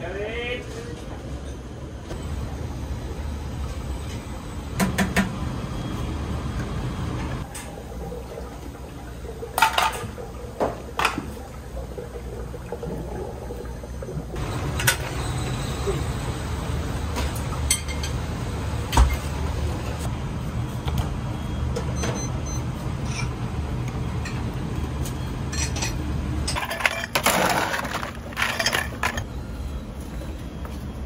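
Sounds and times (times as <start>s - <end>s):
dishes clinking and clattering: 9.6s - 11.4s, 17.2s - 18.2s, 25.5s - 29.3s.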